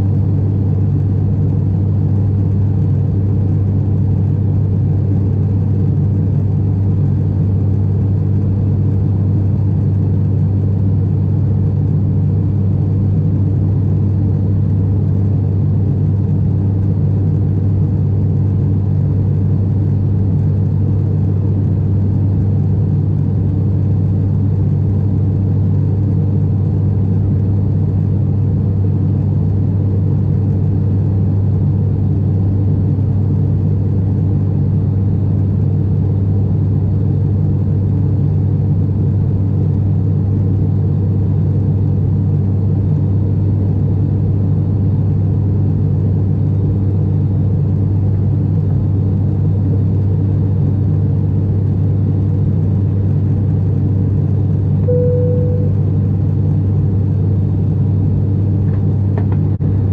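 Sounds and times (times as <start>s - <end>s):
propeller engines droning in cabin: 0.0s - 59.9s.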